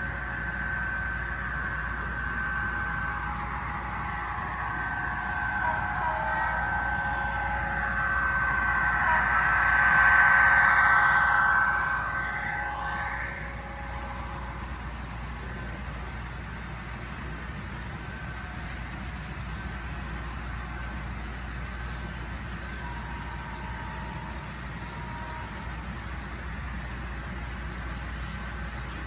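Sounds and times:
held tones: 0.0 - 15.8.

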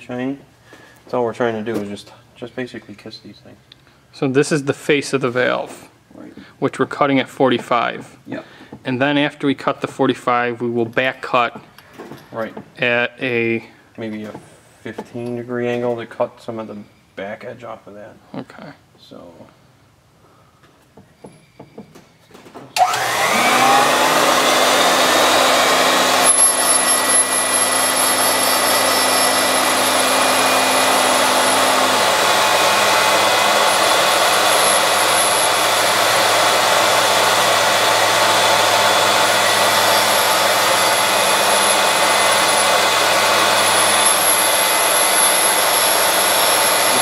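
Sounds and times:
valve grinder whining: 22.8 - 47.0.

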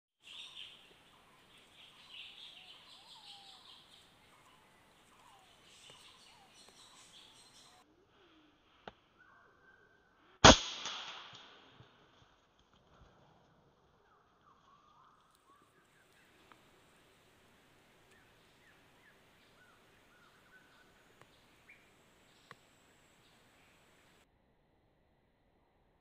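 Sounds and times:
birds chirping: 0.2 - 8.0, 14.0 - 24.2
high buzzing in trees: 0.2 - 8.8, 15.3 - 24.2
air rifle shot: 10.4 - 11.8
faint click: 22.4 - 22.7.

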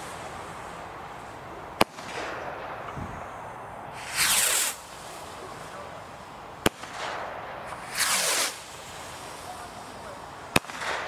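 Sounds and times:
firework bang: 1.8 - 5.9, 6.6 - 11.0
rocket whoosh lifting off: 1.8 - 10.0.

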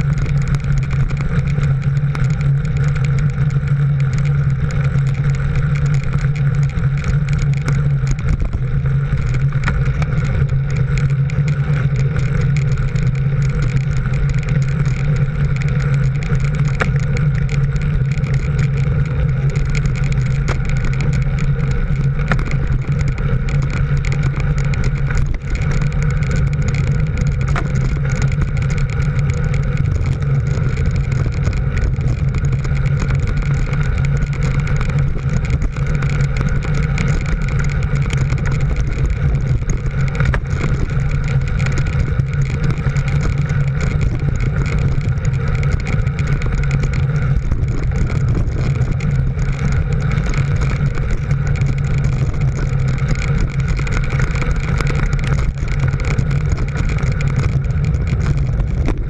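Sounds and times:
road and wind noise: 0.0 - 59.0
vehicle engine droning: 0.0 - 59.0.

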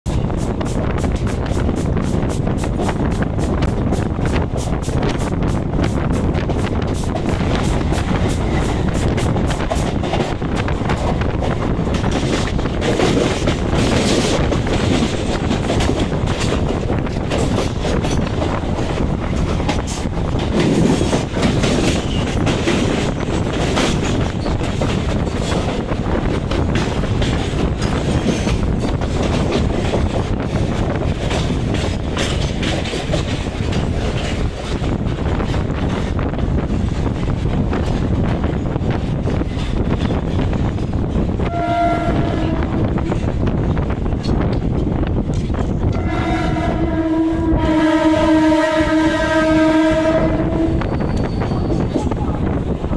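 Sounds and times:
wheels clattering over rail joints: 6.5 - 41.3
freight wagons rushing rattle: 6.8 - 41.3.

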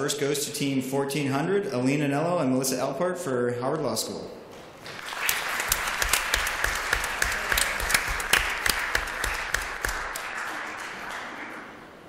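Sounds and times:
audience applauding: 4.8 - 12.0
close hand claps: 4.8 - 12.0.

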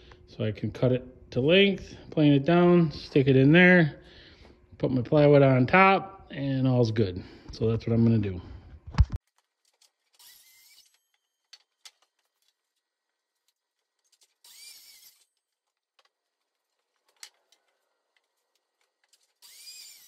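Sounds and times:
miter saw cutting wood: 10.1 - 11.2, 14.4 - 15.3, 19.3 - 20.0.

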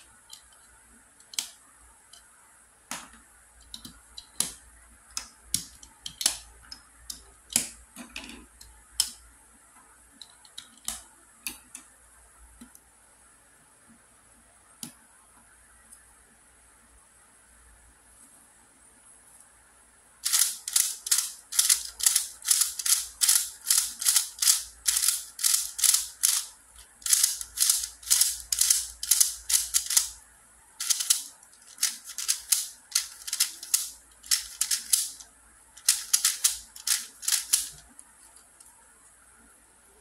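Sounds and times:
puzzle cube clacking turns: 20.2 - 30.2, 30.8 - 37.9.

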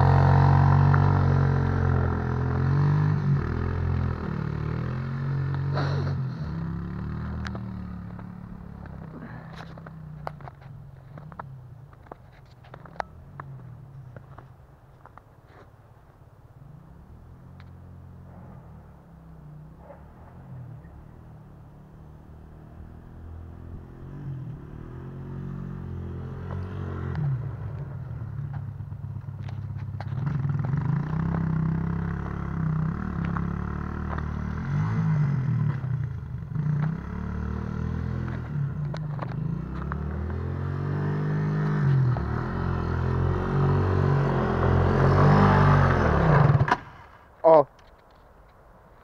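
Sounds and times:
quad bike engine revving: 0.0 - 10.2, 21.9 - 28.0, 29.4 - 46.9.

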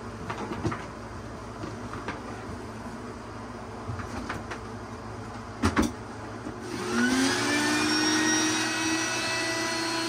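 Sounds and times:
shop vacuum motor whining: 6.6 - 10.0.

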